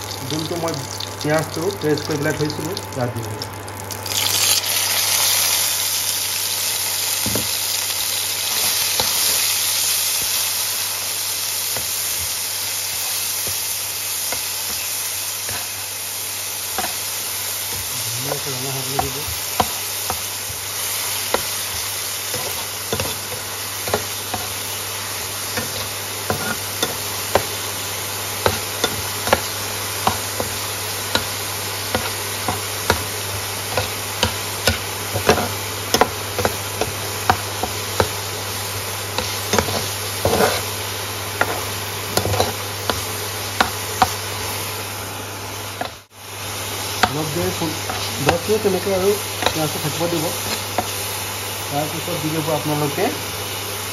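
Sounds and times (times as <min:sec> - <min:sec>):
onion paste sizzling in oil: 0:00.0 - 0:53.9
spatula tapping a pan: 0:19.0 - 0:20.6, 0:25.6 - 0:27.6, 0:28.4 - 0:33.1, 0:33.7 - 0:38.2.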